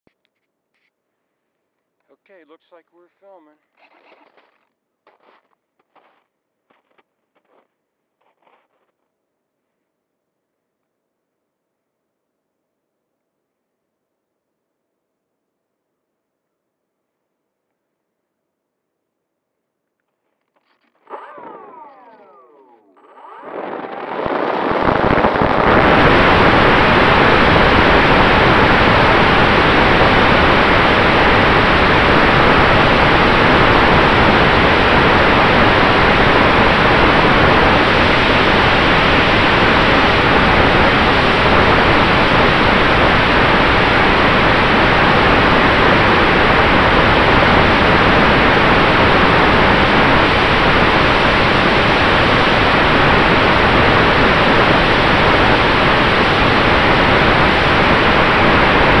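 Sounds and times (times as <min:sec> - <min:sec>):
faint motor hum: 0:20.9 - 0:31.2
propeller and wind rush: 0:21.0 - 0:59.0.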